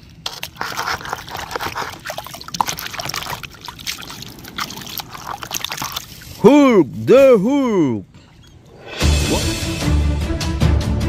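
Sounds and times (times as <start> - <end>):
small water splashes: 0.0 - 6.4
water sloshing in plastic bowl: 0.0 - 6.4.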